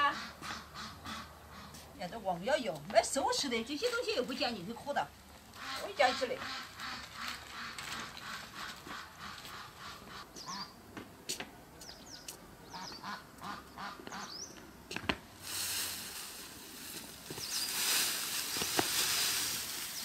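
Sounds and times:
ducks quacking: 0.0s - 1.8s, 5.5s - 10.7s, 12.6s - 14.4s
bamboo branches dragged over stone: 15.4s - 20.0s.

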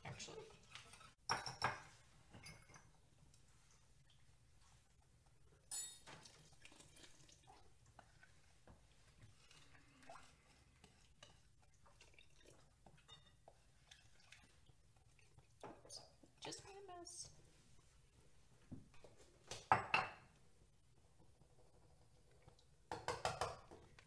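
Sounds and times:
wooden spoon scraping a bowl: 0.3s - 1.2s, 7.9s - 12.1s.

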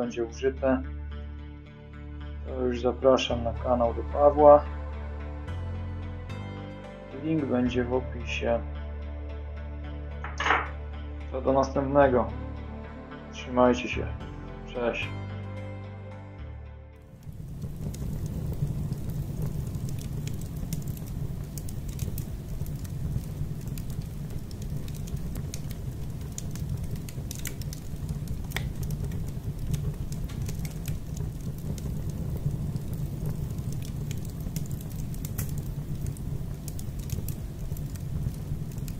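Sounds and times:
fire crackles and pops: 10.2s - 10.8s, 17.0s - 38.9s
fire roaring: 17.0s - 38.9s.

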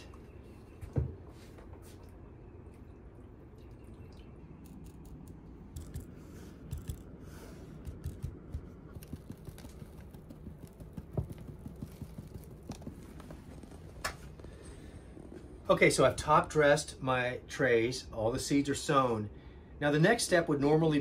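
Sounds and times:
low steady hum: 0.0s - 21.0s
seeds tapping on plastic tray: 7.8s - 13.4s
seed mix sprinkling: 7.9s - 13.3s.

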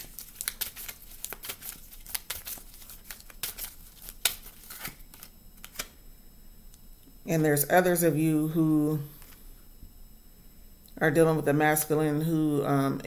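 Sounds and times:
cards being shuffled: 0.0s - 6.0s.

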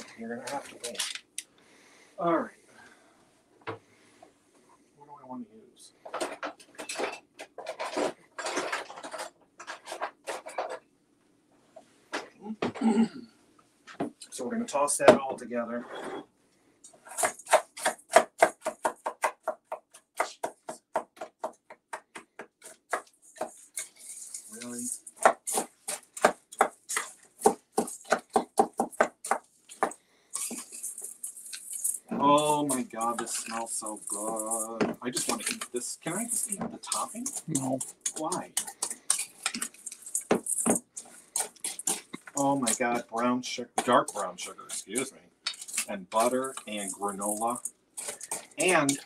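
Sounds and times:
metal cutlery clattering: 6.2s - 10.8s, 32.7s - 43.0s
spoon scraping mixture: 6.8s - 10.8s, 22.6s - 49.0s.

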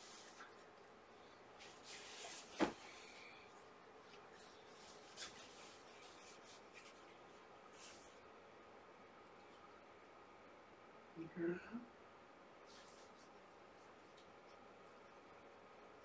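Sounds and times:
fabric rustling: 1.6s - 8.3s.

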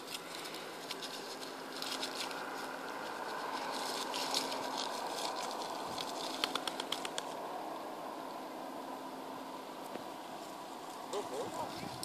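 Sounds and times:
puppy scrabbling in leaves: 0.0s - 7.4s.

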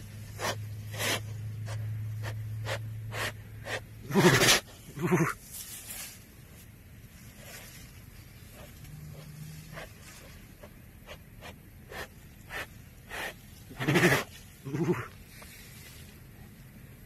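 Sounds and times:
tiger chuffing: 0.0s - 5.5s, 7.3s - 15.3s.

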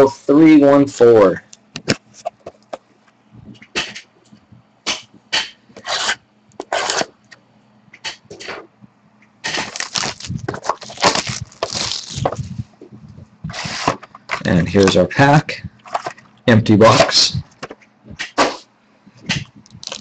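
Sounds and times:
cardboard packaging scraping: 5.8s - 7.1s, 9.5s - 12.7s, 13.5s - 14.1s, 19.8s - 20.0s
packaging rustling: 9.6s - 12.7s, 19.6s - 20.0s.

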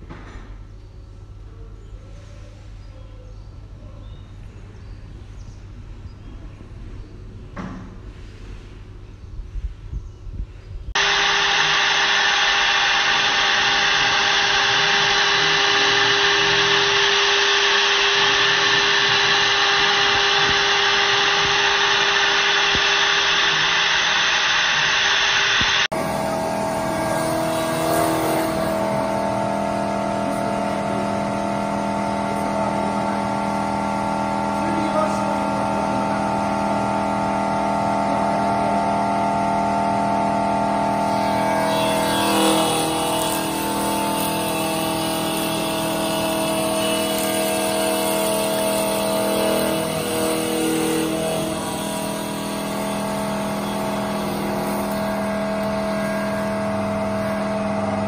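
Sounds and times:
lathe humming with held tones: 11.0s - 58.0s
lathe motor whine: 11.0s - 58.0s
cutter rasping on wood: 41.1s - 56.4s.

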